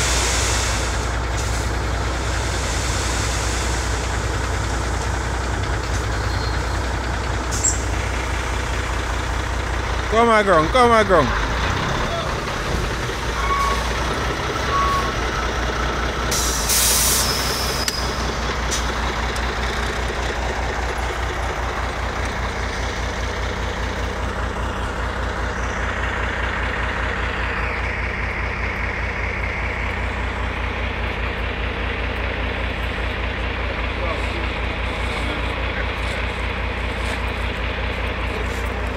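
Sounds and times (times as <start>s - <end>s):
air brake hiss: 0.0s - 1.7s, 2.3s - 4.0s, 16.3s - 18.1s
diesel truck engine running: 0.0s - 38.9s.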